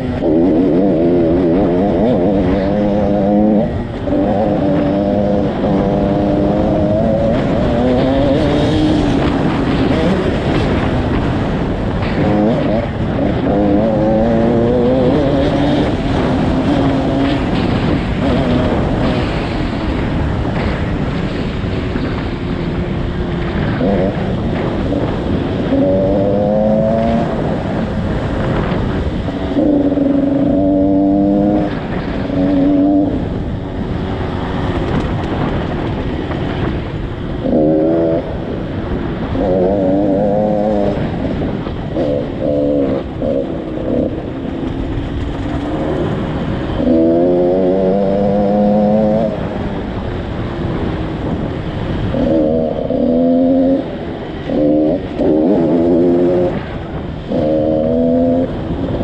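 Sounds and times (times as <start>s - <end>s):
dirt bike engine revving: 0.0s - 59.0s
wind on microphone: 0.0s - 59.0s.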